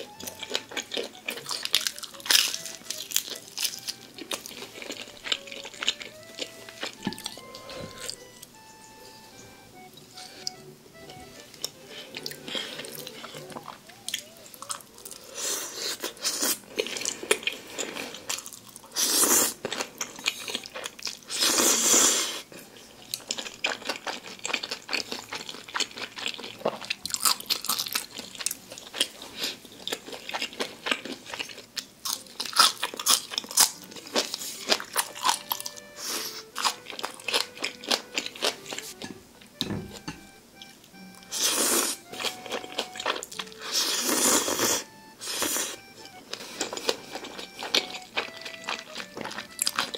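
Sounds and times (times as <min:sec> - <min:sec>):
soft background music: 0:00.0 - 0:49.9
wet chewing and crunching: 0:00.0 - 0:49.9
noodles slurped: 0:43.6 - 0:45.8.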